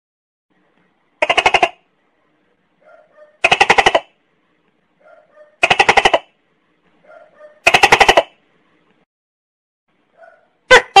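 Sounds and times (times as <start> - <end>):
gecko rattling calls: 1.2 - 1.8, 3.4 - 4.2.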